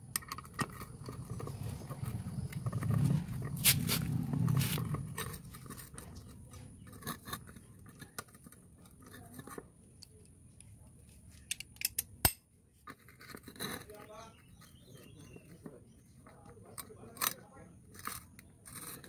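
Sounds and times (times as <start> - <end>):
box spanner clicking on nuts: 0.0 - 3.8, 16.7 - 19.0.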